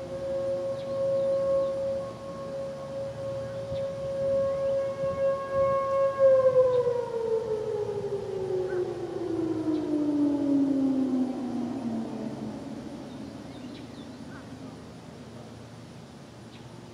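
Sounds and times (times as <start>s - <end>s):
warning siren steady tone: 0.0s - 15.8s.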